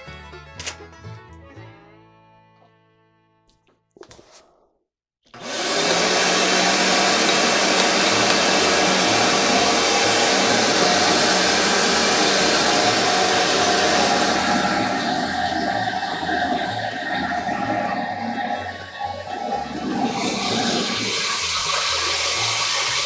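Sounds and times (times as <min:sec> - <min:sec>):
shop vacuum running: 0:05.3 - 0:23.0.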